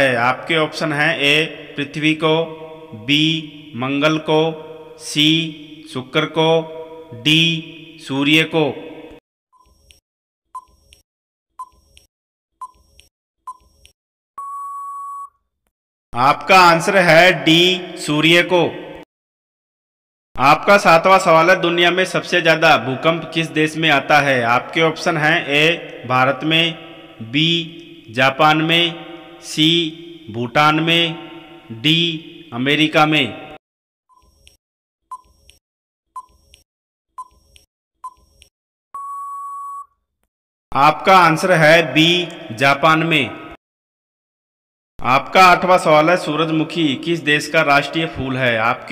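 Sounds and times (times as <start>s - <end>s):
long steady beep: 14.4s - 15.4s, 39.0s - 39.9s
short beeps: 14.4s - 15.4s, 39.0s - 40.0s.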